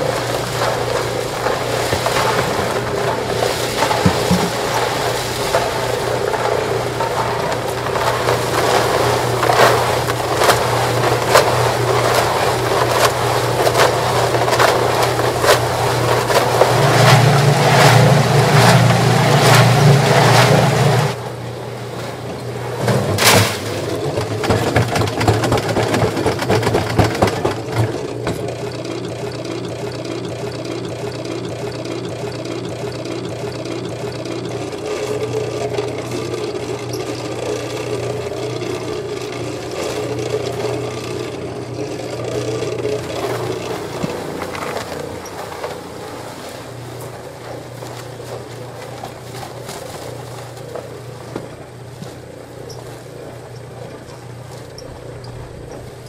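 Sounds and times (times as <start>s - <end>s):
clattering: 0.0s - 20.6s
cement mixer running: 0.0s - 56.0s.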